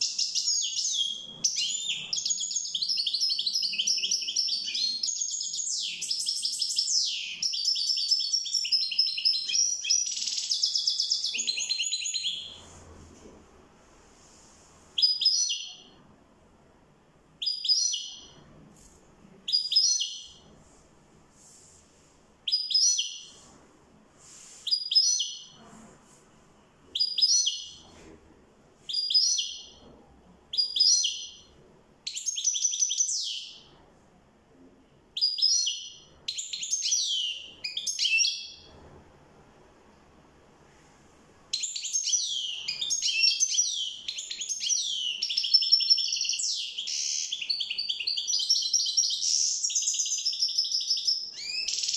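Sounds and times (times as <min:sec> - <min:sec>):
goldfinch chirping song: 0:00.0 - 0:12.6, 0:17.4 - 0:18.4, 0:32.1 - 0:33.7, 0:35.2 - 0:38.7, 0:41.6 - 0:51.9.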